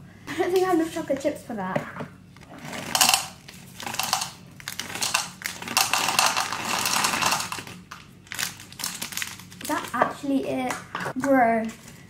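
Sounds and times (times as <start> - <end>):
chocolate chips pouring into cup: 2.6 - 9.7.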